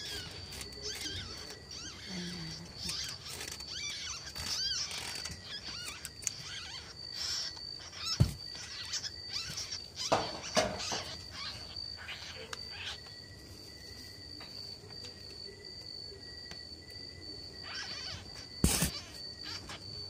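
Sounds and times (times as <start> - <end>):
high-pitched insect drone: 0.0 - 20.0
knocks on wire cage: 10.1 - 11.1.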